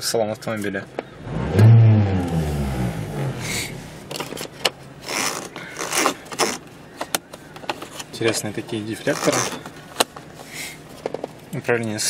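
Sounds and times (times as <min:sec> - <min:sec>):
car engine revving: 0:01.1 - 0:06.6.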